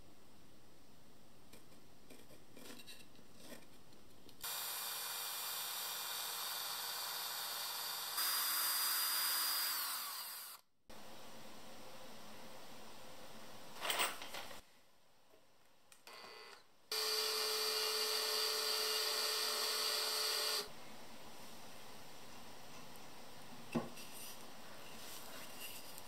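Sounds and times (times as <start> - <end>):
power drill boring wood: 4.4 - 10.6, 16.1 - 20.7.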